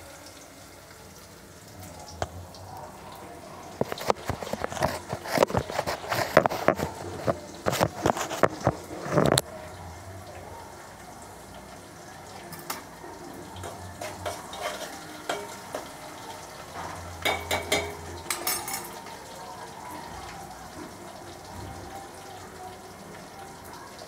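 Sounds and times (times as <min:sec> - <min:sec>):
oil sizzling in a pan: 0:00.0 - 0:24.0
utensils and pots clattering: 0:03.6 - 0:09.5, 0:12.3 - 0:22.2.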